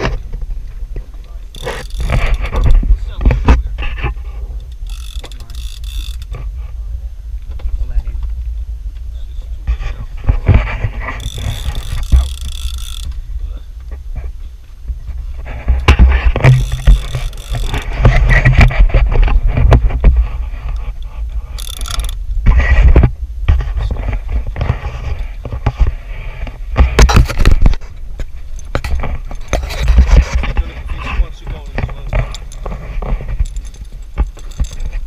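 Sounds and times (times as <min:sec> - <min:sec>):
low rumble: 0:00.0 - 0:35.0
fishing reel clicking and grinding: 0:01.2 - 0:02.6, 0:04.6 - 0:06.4, 0:11.0 - 0:13.2, 0:16.4 - 0:18.8, 0:20.7 - 0:22.2, 0:31.6 - 0:35.0.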